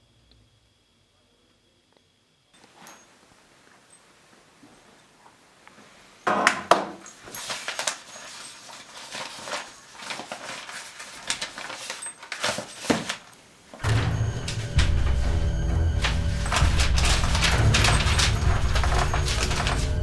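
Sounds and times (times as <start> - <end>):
papers rustling: 6.9 - 20.0.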